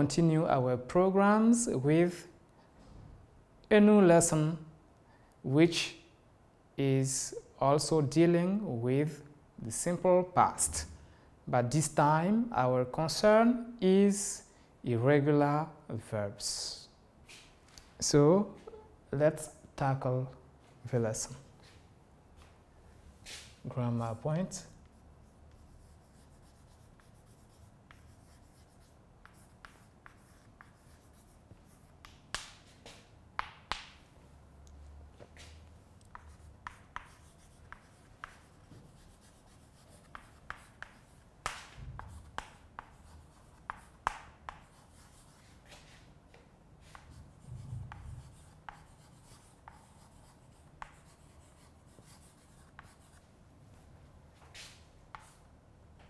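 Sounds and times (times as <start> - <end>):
chalk tapping and scratching on blackboard: 24.4 - 34.0, 35.3 - 46.0, 46.8 - 53.2, 54.5 - 55.5.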